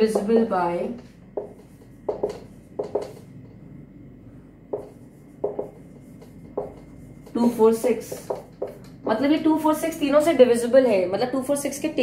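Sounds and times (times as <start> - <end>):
marker pen writing on whiteboard: 0.0 - 3.4, 4.7 - 9.3.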